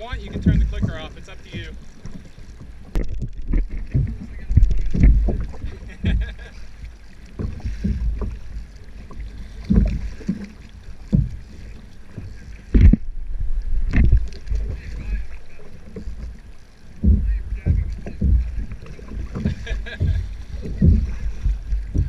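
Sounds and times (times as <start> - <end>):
wind rumble on microphone: 0.0 - 1.7, 2.8 - 6.5, 12.4 - 15.3, 17.0 - 22.0
water splashing against kayak hull: 0.0 - 22.0.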